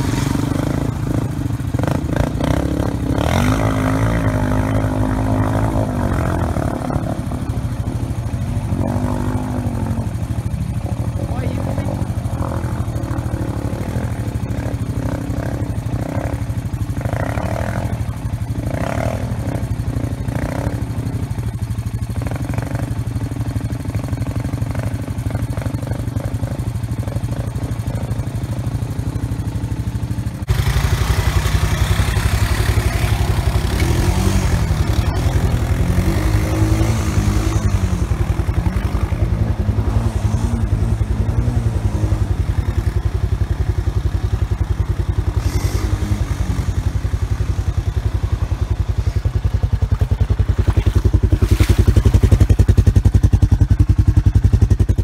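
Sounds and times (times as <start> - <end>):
atv engine revving: 0.0 - 55.0
water splashing: 49.2 - 53.8.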